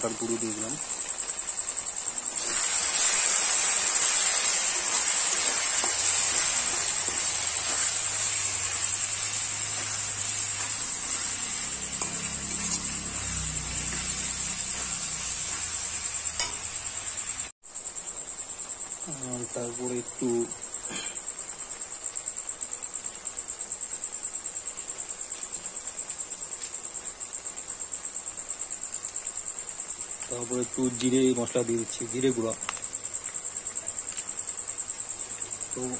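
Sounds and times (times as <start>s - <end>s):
crickets chirring: 0.0s - 35.9s
food sizzling in a pan: 0.0s - 35.9s.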